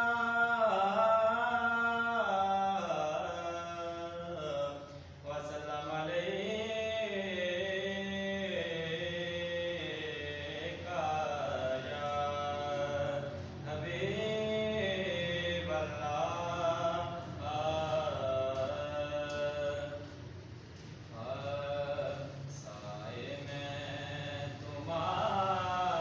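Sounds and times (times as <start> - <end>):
man chanting religious recitation: 0.0 - 26.0.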